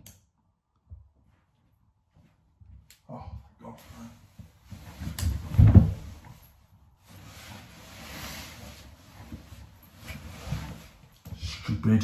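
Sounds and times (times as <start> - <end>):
bedding rustling: 3.6 - 11.5
body thumping onto a mattress: 4.7 - 6.2.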